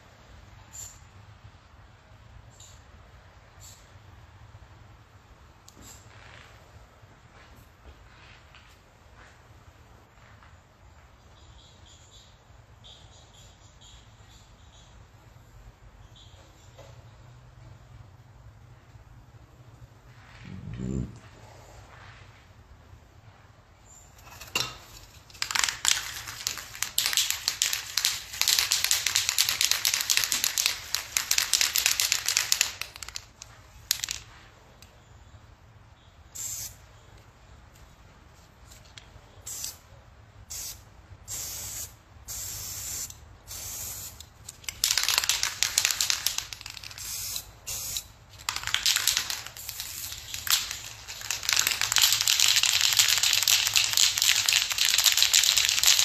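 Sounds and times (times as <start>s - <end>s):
spray can hissing: 25.4s - 33.3s, 36.4s - 36.8s, 40.5s - 56.0s.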